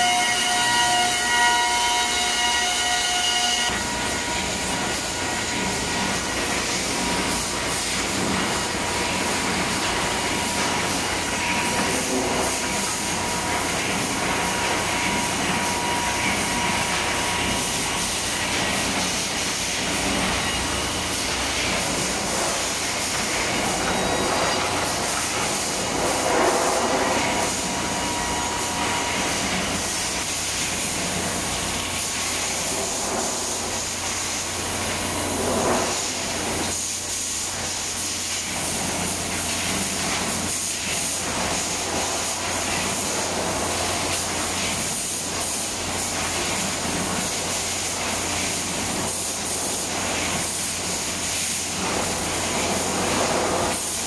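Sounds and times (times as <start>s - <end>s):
industrial machinery running: 0.0s - 54.0s
faint machine whine: 19.8s - 30.2s.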